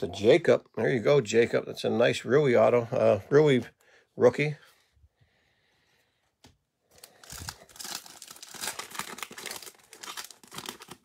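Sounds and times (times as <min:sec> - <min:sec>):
plastic wrapper crinkling and tearing: 0:06.9 - 0:11.0.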